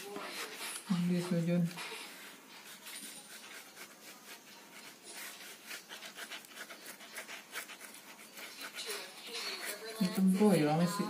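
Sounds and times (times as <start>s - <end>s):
pen scratching on carpet: 0.0s - 10.7s.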